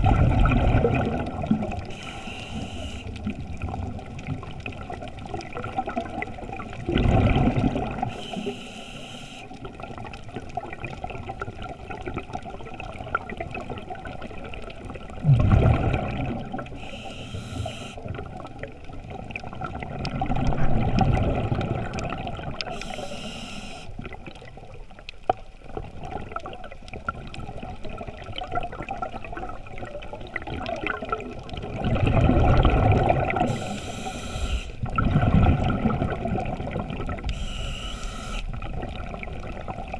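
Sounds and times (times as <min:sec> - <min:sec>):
low wash of water: 0:00.0 - 0:08.6, 0:09.4 - 0:17.2, 0:17.9 - 0:23.0, 0:23.9 - 0:37.7
exhaled bubbles gurgling: 0:00.0 - 0:39.9
regulator hiss: 0:01.9 - 0:03.2, 0:08.1 - 0:09.5, 0:16.8 - 0:18.0, 0:22.7 - 0:23.9, 0:33.4 - 0:34.8, 0:37.3 - 0:38.5.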